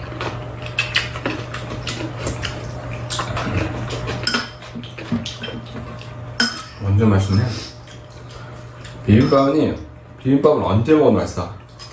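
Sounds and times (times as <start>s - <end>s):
steady low hum: 0.0s - 11.9s.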